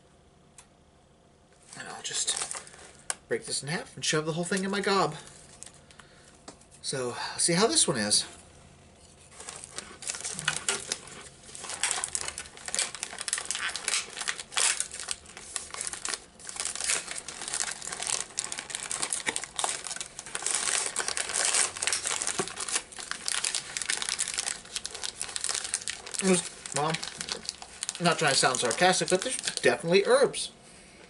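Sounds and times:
plastic wrapper crinkling: 0:01.7 - 0:03.2, 0:09.1 - 0:30.3.

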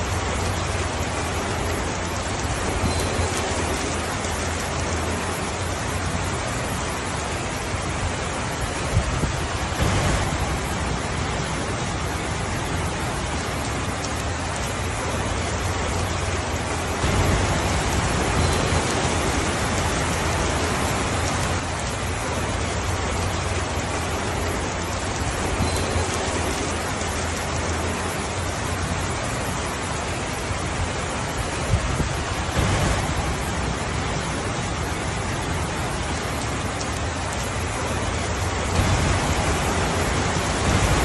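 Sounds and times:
steady rainfall: 0:00.0 - 0:41.0.

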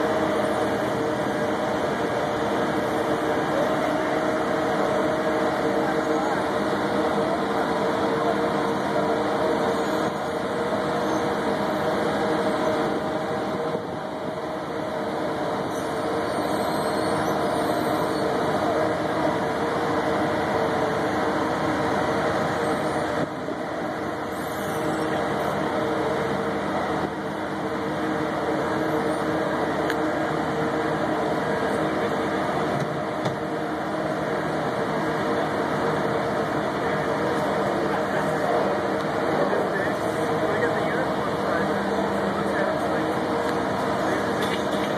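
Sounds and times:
boat hoist engine droning: 0:00.0 - 0:44.9.

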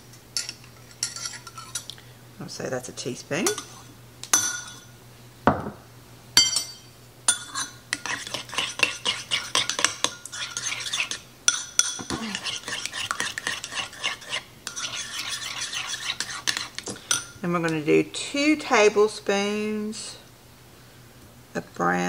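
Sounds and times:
metal spoon scraping ceramic bowl: 0:00.4 - 0:01.9, 0:07.3 - 0:17.3
spoon clinking on bowl: 0:06.4 - 0:13.8.

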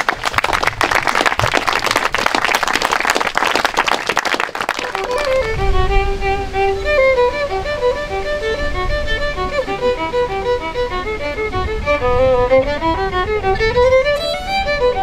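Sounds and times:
solo violin tune: 0:04.8 - 0:15.0.

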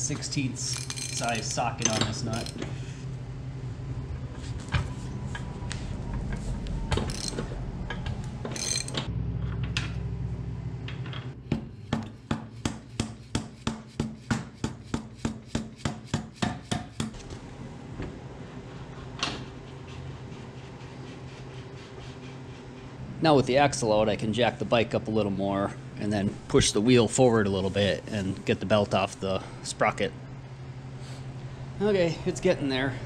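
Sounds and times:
low steady hum: 0:00.0 - 0:12.1, 0:17.1 - 0:33.0
socket and nut clinking: 0:00.7 - 0:02.6, 0:07.1 - 0:07.4, 0:08.5 - 0:09.0.

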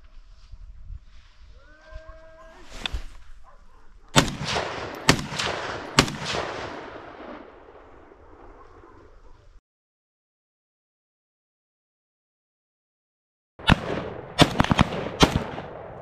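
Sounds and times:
shotgun shots echoing: 0:04.1 - 0:08.6, 0:13.6 - 0:16.0.

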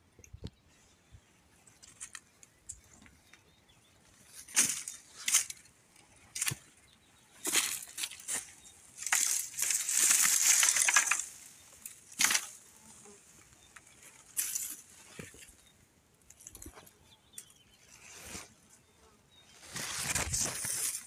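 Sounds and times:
footsteps crunching dry brush: 0:04.2 - 0:05.7, 0:07.4 - 0:13.4, 0:19.5 - 0:21.0.

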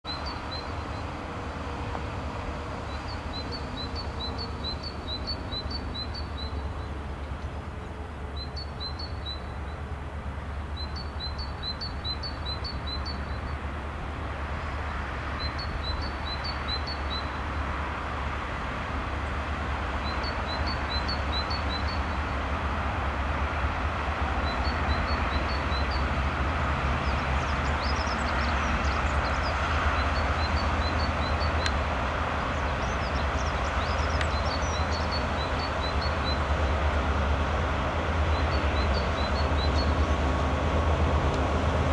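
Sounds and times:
diesel locomotive rumble: 0:00.1 - 0:41.9
songbird chirping: 0:32.5 - 0:36.9.

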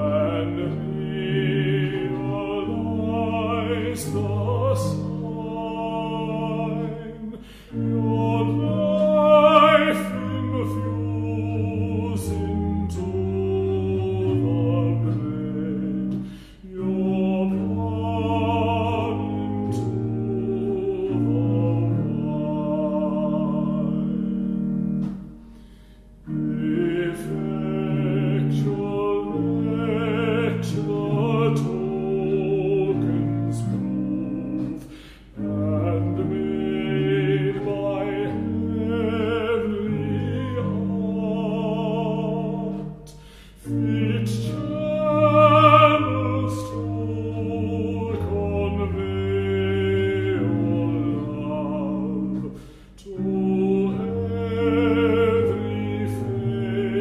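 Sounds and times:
classical singing with vibrato: 0:00.0 - 0:57.0
sustained lower accompaniment: 0:00.0 - 0:57.0.

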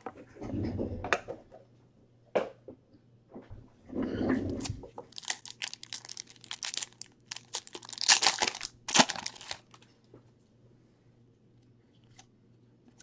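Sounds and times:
card pack wrapper crinkling: 0:05.0 - 0:09.8.

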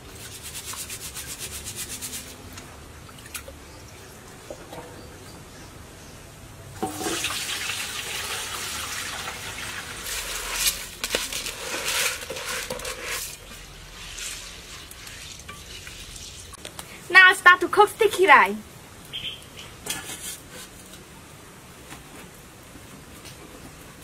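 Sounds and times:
rice rustling with clicks: 0:10.0 - 0:16.9.

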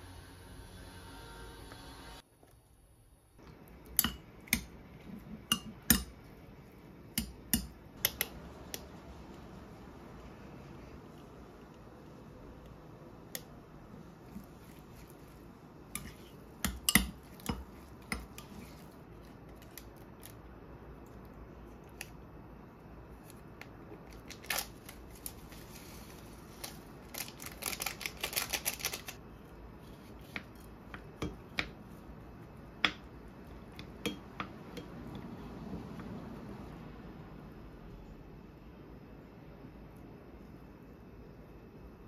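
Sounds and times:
sachet crinkling: 0:24.1 - 0:29.2
utensils and packaging clicking: 0:26.6 - 0:29.2.

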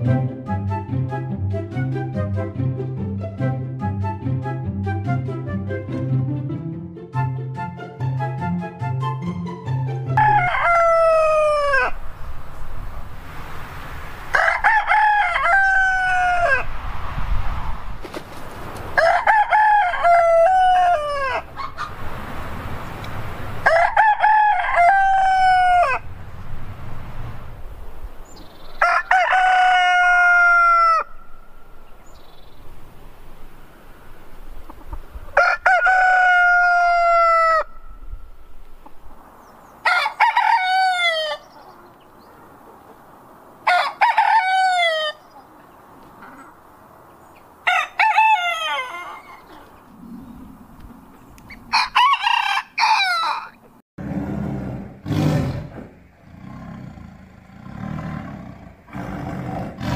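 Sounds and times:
roosters crowing: 0:10.2 - 0:12.9, 0:13.7 - 0:16.9, 0:18.3 - 0:32.4, 0:33.6 - 0:38.3, 0:38.9 - 0:59.9
tiger growling: 0:54.0 - 0:59.9.

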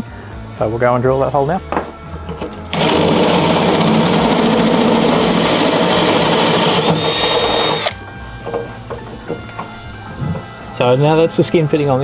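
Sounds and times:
drill with hole saw grinding metal: 0:02.7 - 0:08.0.

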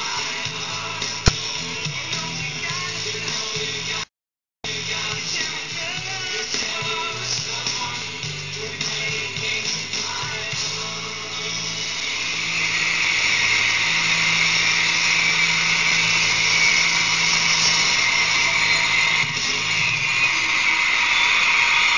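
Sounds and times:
crowd screaming and cheering: 0:12.3 - 0:21.9.

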